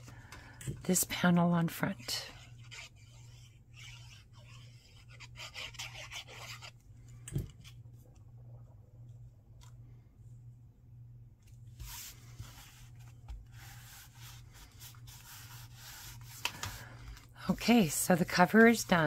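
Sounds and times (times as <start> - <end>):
glue nozzle scratching on card: 1.8 - 6.8.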